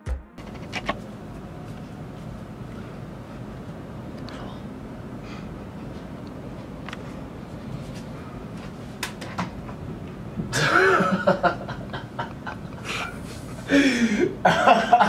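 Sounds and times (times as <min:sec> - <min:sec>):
man chuckling and laughing: 0:10.5 - 0:15.0.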